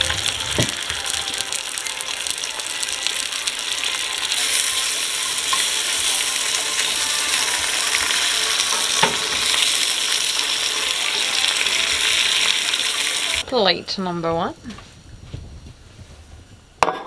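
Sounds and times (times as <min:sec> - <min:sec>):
food sizzling in a frying pan: 0:00.0 - 0:13.4.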